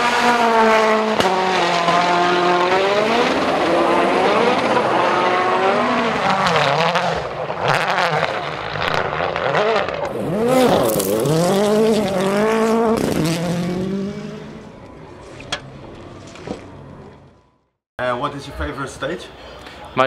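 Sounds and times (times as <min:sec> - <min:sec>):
rally car engines at full throttle: 0:00.0 - 0:17.5.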